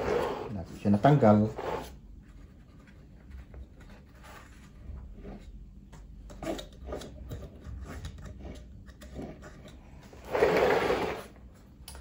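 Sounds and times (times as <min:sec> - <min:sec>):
plastic scrape: 0:00.0 - 0:00.6, 0:08.0 - 0:11.4.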